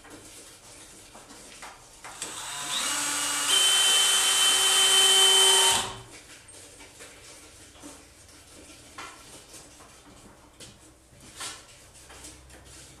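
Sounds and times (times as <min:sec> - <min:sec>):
cordless drill whining: 0:02.1 - 0:06.1.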